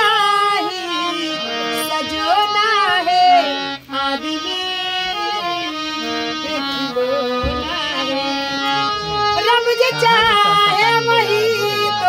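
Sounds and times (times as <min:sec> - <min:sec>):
harmonium melody: 0:00.0 - 0:12.0
person singing: 0:06.4 - 0:12.0.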